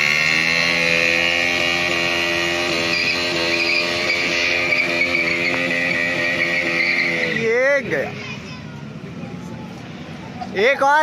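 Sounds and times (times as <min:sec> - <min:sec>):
motorcycle engine running: 0:00.0 - 0:08.2.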